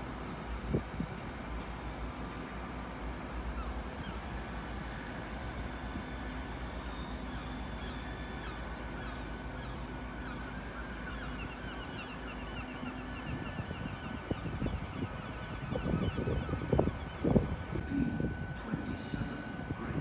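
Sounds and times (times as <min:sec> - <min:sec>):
diesel train engine rumble: 0:00.0 - 0:20.0
birds chirping: 0:06.9 - 0:17.5.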